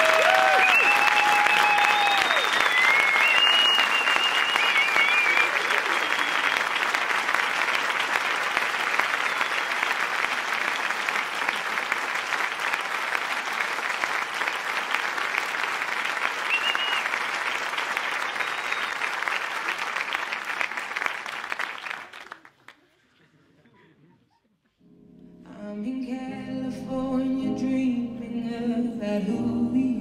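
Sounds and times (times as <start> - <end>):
audience applauding: 0.0 - 23.0.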